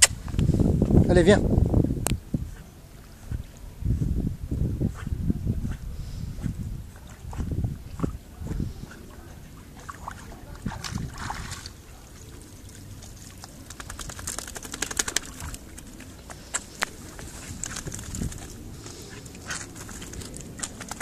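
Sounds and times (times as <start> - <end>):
wind rumbling on microphone: 0.0 - 21.0
sea water splashing and trickling: 9.1 - 21.0.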